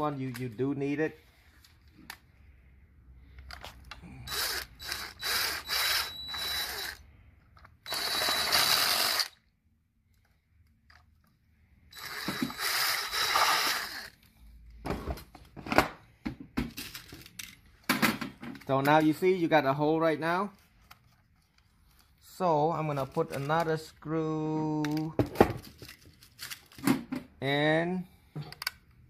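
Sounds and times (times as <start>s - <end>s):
power drill boring plastic: 4.3s - 7.0s, 7.8s - 9.4s, 11.9s - 14.2s.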